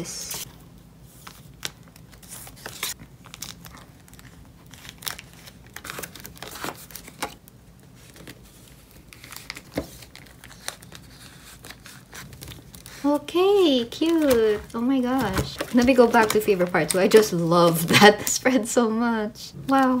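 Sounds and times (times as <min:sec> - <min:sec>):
plastic sleeves crinkling: 0:00.2 - 0:18.8.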